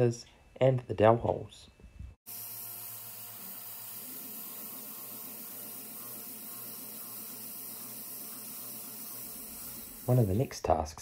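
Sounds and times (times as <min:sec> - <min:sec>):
milling machine spindle running: 0:02.3 - 0:10.3
spray nozzle hissing: 0:02.3 - 0:10.4.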